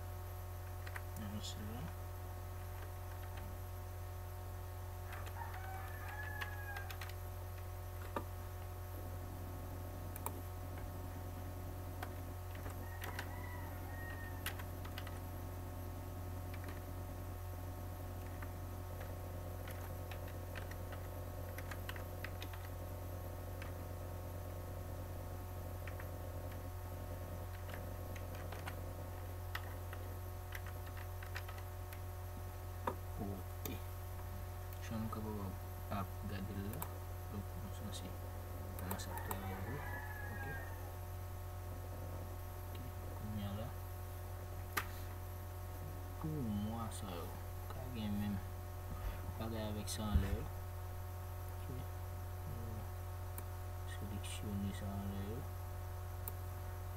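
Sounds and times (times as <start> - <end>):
low hum: 0.0 - 56.9
keyboard keystrokes: 0.7 - 1.3, 2.8 - 3.5, 5.1 - 8.3, 12.0 - 13.3, 14.4 - 15.2, 16.5 - 16.9, 18.2 - 22.8, 27.5 - 28.8, 29.5 - 31.6.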